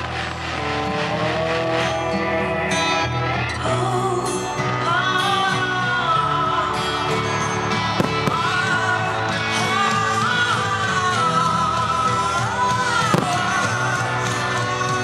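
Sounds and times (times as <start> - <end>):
pop band accompaniment: 0.0 - 15.0
person singing long notes: 8.1 - 15.0.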